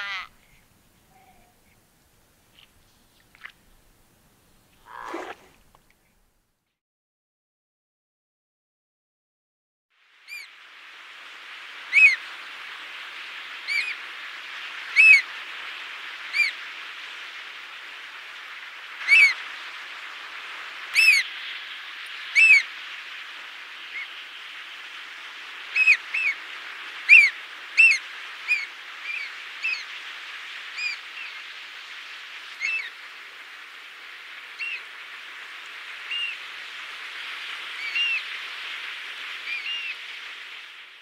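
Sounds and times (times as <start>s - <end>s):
surf hiss: 0.0s - 6.5s, 10.0s - 41.0s
bird piping calls: 10.3s - 10.5s, 11.9s - 12.3s, 13.6s - 14.0s, 14.9s - 15.3s, 16.2s - 16.6s, 19.0s - 19.5s, 20.8s - 21.4s, 22.0s - 22.7s, 25.7s - 26.4s, 27.0s - 30.0s, 30.7s - 31.5s, 32.5s - 33.0s, 34.5s - 34.9s, 36.0s - 36.5s, 37.6s - 38.3s, 39.4s - 40.0s.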